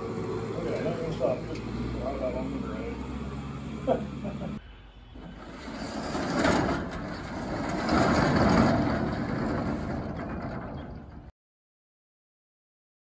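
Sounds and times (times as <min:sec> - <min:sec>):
steel garage door rolling down: 0:05.2 - 0:11.3.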